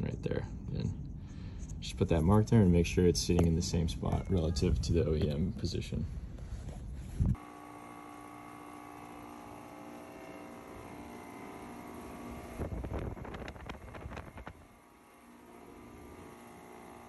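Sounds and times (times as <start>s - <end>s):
steady machine hum: 0.0s - 17.0s
wind buffeting microphone: 12.6s - 14.7s.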